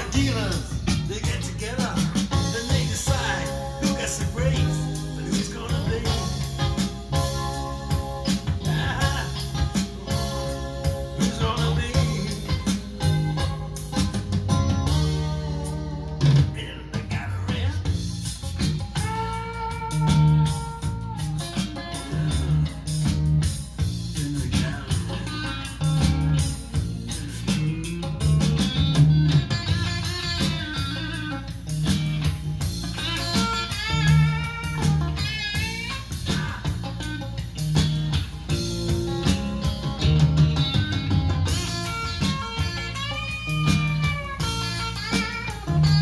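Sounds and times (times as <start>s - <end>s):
song over loudspeakers: 0.0s - 18.2s, 24.2s - 30.9s
blues-rock music from speakers: 0.0s - 46.0s.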